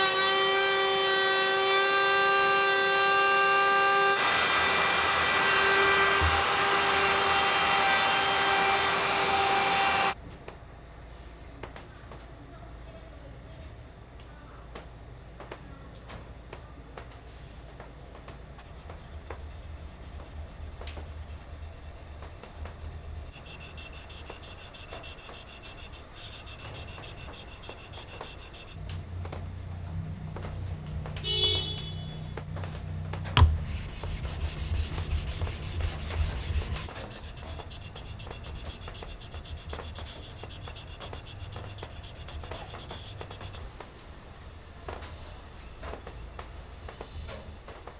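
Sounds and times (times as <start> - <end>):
chisel scraping on whetstone: 18.6 - 32.4, 33.4 - 43.7, 44.3 - 47.9.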